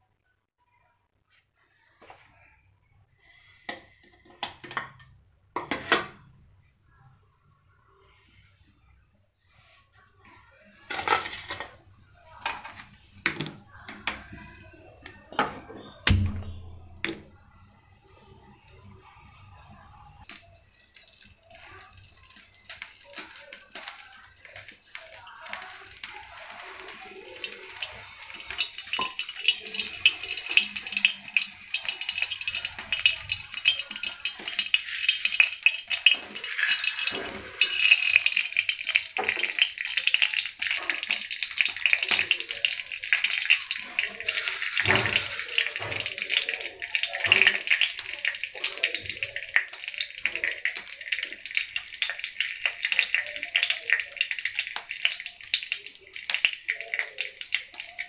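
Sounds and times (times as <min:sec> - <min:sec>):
hot oil sizzling: 0:10.8 - 0:58.0
mustard seeds popping: 0:27.9 - 0:58.0.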